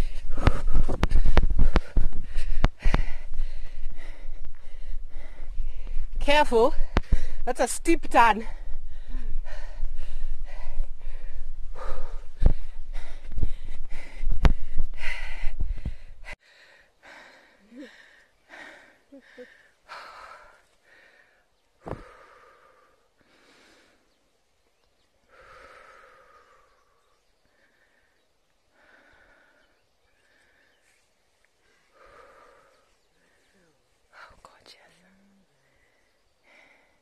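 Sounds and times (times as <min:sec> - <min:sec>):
person breathing hard: 0:00.0 - 0:07.5, 0:08.4 - 0:24.1, 0:25.2 - 0:34.5, 0:35.6 - 0:37.0
low microphone rumble: 0:08.4 - 0:16.4.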